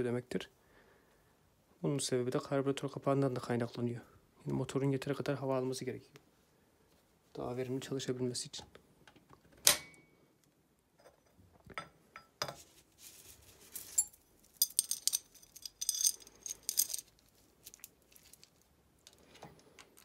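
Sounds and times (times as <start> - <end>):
timing chain rattling: 14.0 - 17.2.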